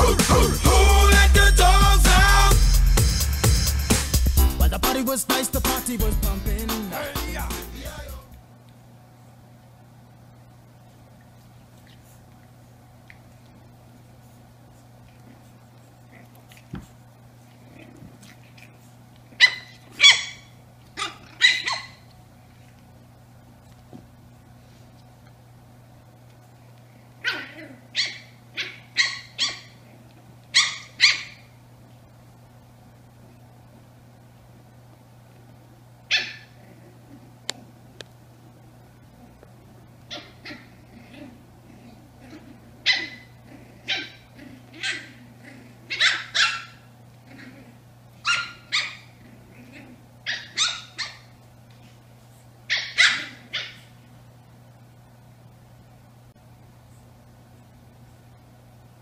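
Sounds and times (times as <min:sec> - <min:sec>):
puppy yapping: 0:19.3 - 0:22.1, 0:27.2 - 0:29.9, 0:30.5 - 0:31.6, 0:36.1 - 0:36.8, 0:40.1 - 0:47.6, 0:48.2 - 0:51.4, 0:52.7 - 0:53.9.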